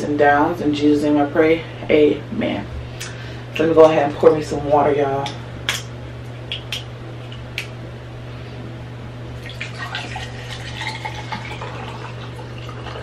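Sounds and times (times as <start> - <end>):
low steady hum: 0.0 - 13.0
water pouring over ice: 9.4 - 13.0.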